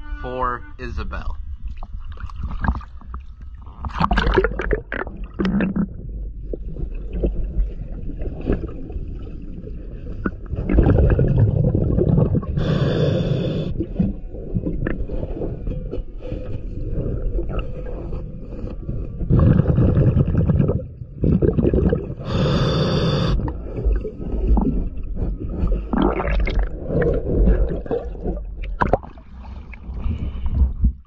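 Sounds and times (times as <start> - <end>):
exhaled bubbles gurgling underwater: 1.6 - 31.0
hissing inhalation through regulator: 12.5 - 14.0, 22.2 - 23.5.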